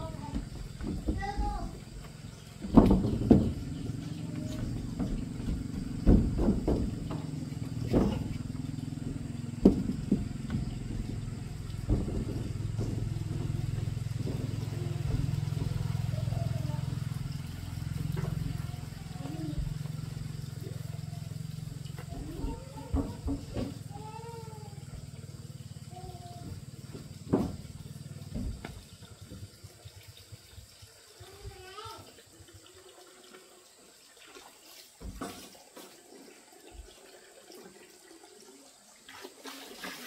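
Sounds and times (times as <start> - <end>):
small engine humming: 0.0 - 33.2
knocks and clatter: 0.1 - 19.9, 21.9 - 24.1.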